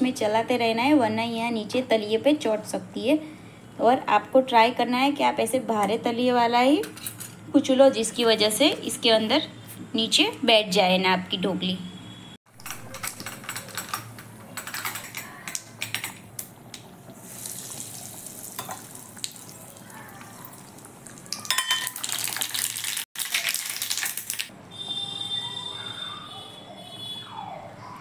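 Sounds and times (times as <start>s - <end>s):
steel pots and utensils clinking: 6.7s - 7.4s, 12.5s - 16.3s, 17.2s - 24.1s
hot oil sizzling: 16.6s - 24.5s.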